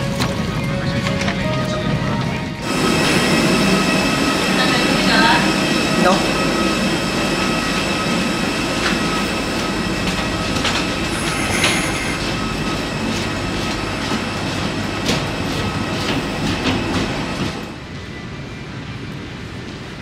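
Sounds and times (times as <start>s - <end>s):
airplane cabin rumble: 0.0s - 17.6s
thin steady whine: 2.6s - 14.1s.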